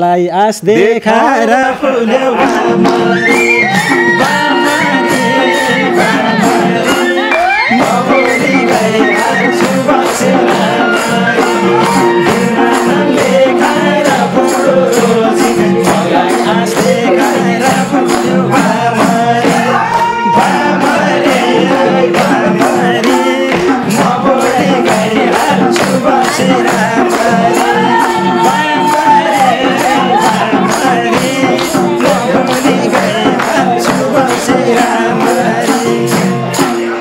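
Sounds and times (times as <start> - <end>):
hand drums beating: 2.1 - 37.0
hand clapping: 2.4 - 20.2, 20.8 - 36.8
flute melody: 2.6 - 13.8, 19.5 - 24.4.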